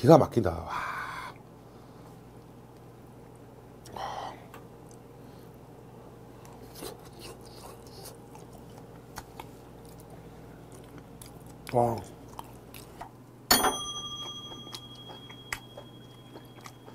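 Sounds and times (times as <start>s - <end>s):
chewing and lip smacks: 4.8s - 5.0s, 6.4s - 13.2s, 14.4s - 16.9s.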